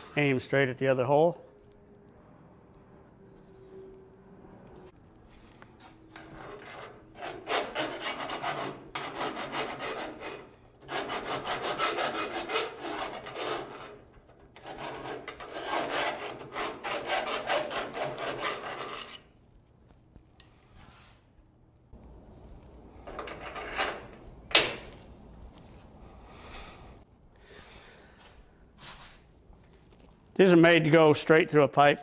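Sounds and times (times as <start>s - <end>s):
hand file rasping in steel: 6.2s - 19.3s.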